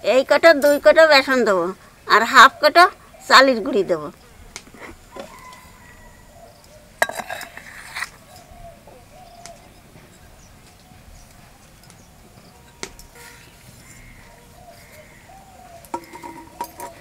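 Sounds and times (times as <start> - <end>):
faint birds chirping: 1.2 - 17.0
metal cup clinking against steel bowl: 7.0 - 8.5, 15.9 - 17.0.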